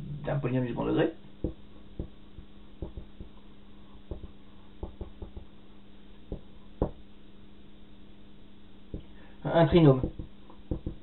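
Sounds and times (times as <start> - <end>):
low hum: 0.0 - 11.0
marker writing on whiteboard: 1.4 - 3.4, 4.0 - 5.5, 10.0 - 11.0.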